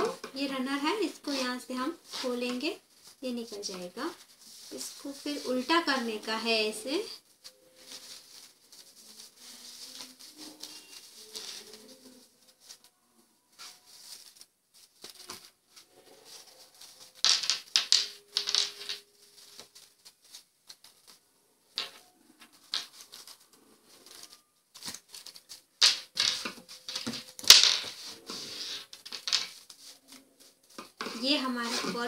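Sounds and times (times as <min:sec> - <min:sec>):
fabric rustling and scraping: 0:00.0 - 0:32.0.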